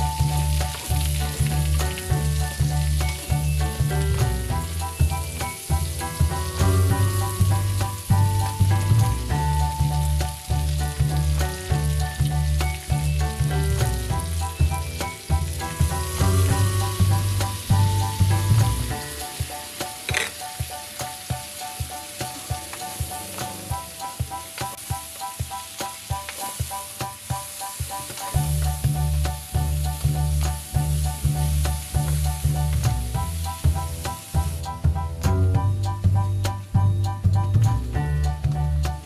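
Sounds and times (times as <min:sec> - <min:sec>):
food sizzling in a wok: 0:00.0 - 0:36.7
background music: 0:00.0 - 0:39.0.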